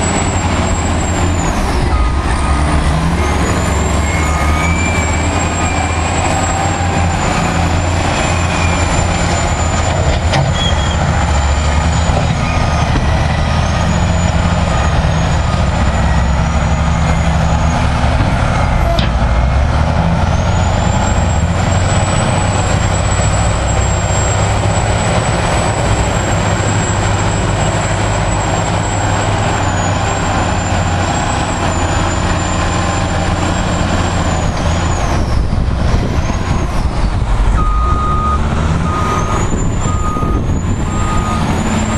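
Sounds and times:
heavy diesel engines under load: 0:00.0 - 0:41.9.

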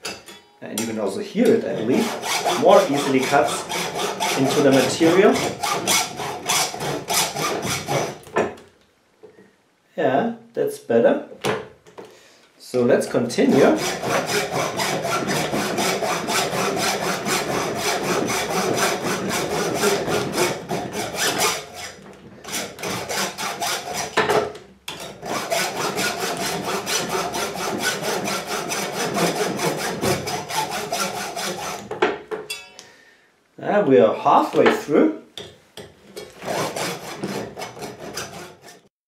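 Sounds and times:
hacksaw cutting through metal: 0:01.5 - 0:08.4, 0:13.5 - 0:32.0, 0:36.2 - 0:38.9.

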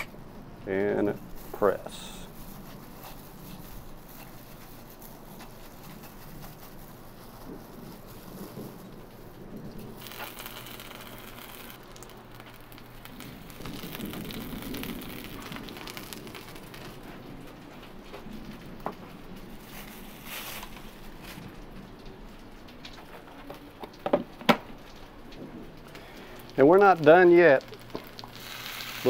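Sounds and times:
chicken sizzling in hot oil: 0:01.3 - 0:09.2, 0:09.9 - 0:17.2, 0:26.0 - 0:29.0.

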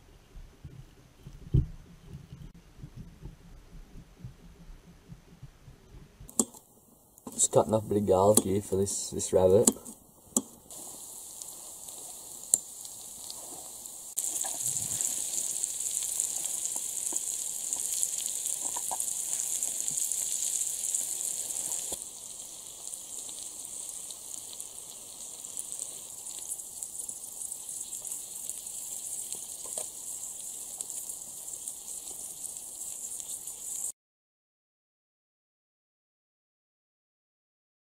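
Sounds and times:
meat sizzling on grill: 0:07.2 - 0:33.9.

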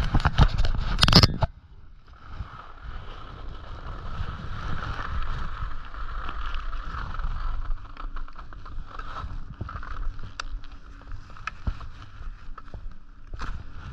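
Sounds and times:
wind on microphone: 0:00.0 - 0:13.9.

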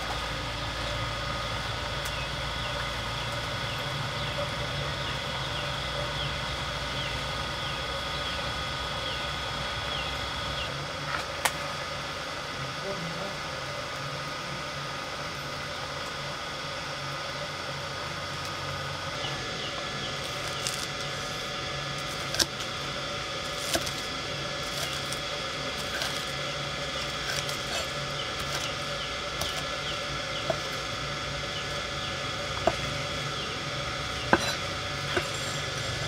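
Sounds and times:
steady background drone: 0:00.0 - 0:36.0
knife chopping on wooden board: 0:32.6 - 0:32.8, 0:34.3 - 0:35.5.

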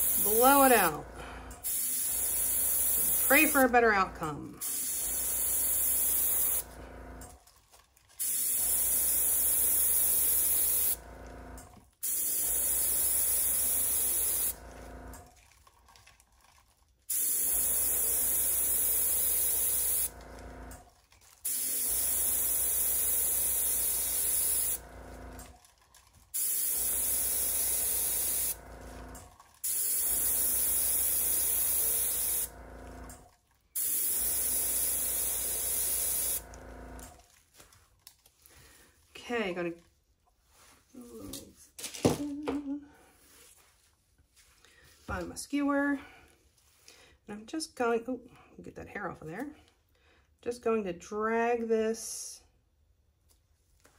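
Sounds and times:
compressed air hissing from nozzle: 0:01.6 - 0:03.6, 0:12.1 - 0:14.6, 0:21.5 - 0:24.8, 0:29.7 - 0:32.5, 0:33.8 - 0:36.4.

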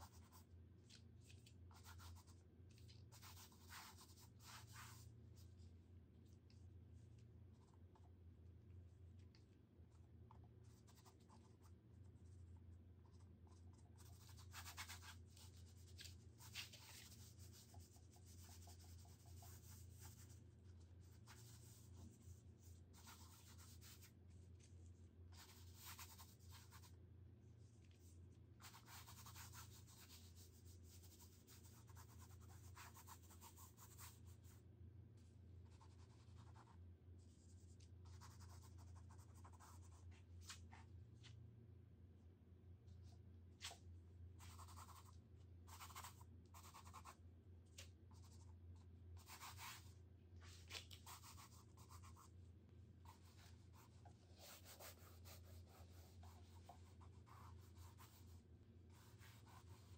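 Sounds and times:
scratchy paint strokes on canvas: 0:00.0 - 0:05.7.

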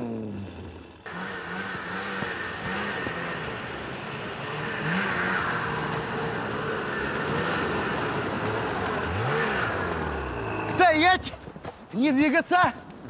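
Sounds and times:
snowmobile engine running: 0:00.0 - 0:12.9.

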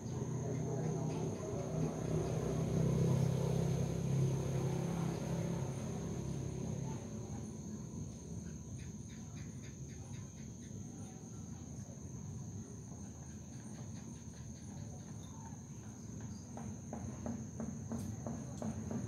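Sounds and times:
low motor hum: 0:00.0 - 0:08.4
insects trilling: 0:00.0 - 0:19.0.

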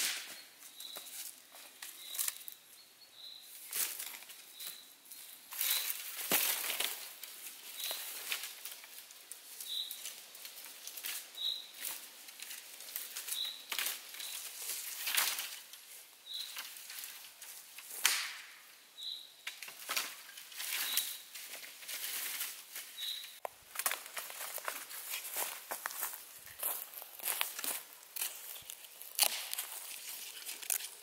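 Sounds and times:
footsteps in dry leaves: 0:03.5 - 0:17.8, 0:20.1 - 0:31.0
sticks rustling and knocking together: 0:19.5 - 0:31.0.

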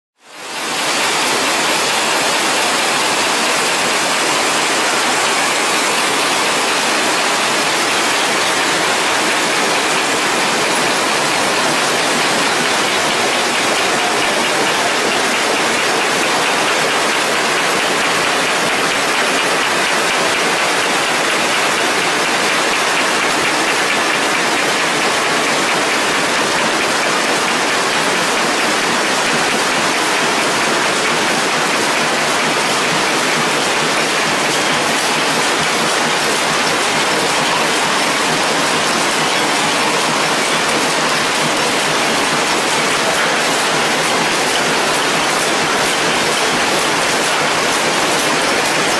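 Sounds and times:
factory machinery running: 0:00.3 - 0:48.9.

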